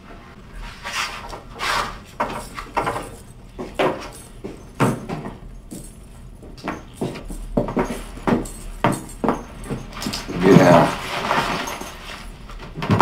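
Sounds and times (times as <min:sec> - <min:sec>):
metallic jangling: 0:02.1 - 0:12.4.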